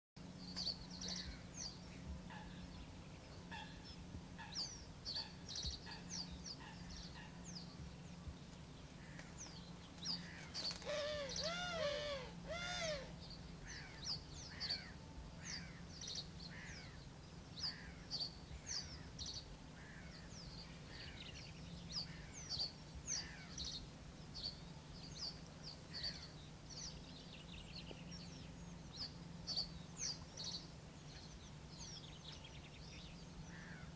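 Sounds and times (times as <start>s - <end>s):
low steady hum: 0.2s - 33.9s
small birds chirping: 0.2s - 33.9s
harsh bird calls: 9.0s - 17.0s.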